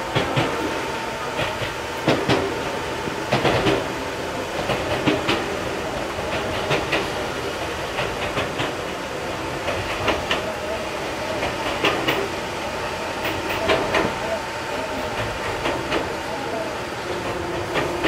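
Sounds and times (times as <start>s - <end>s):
electric train rumbling: 0.0s - 18.0s
wheels clicking over rail joints: 3.3s - 12.4s, 13.1s - 18.0s.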